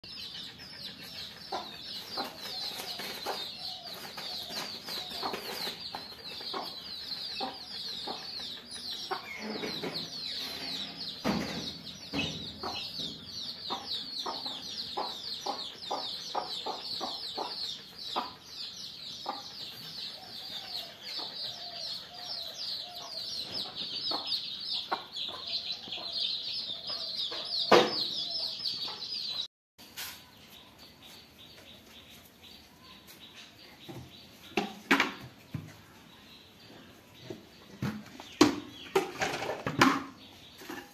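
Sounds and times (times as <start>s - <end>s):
hen clucking: 0.1s - 26.4s
chicks peeping: 0.1s - 29.5s.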